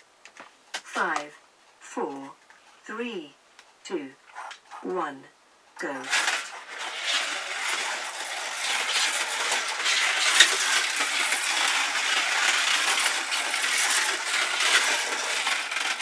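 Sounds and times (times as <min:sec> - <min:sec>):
slot cars rattling on track: 0:06.0 - 0:16.0.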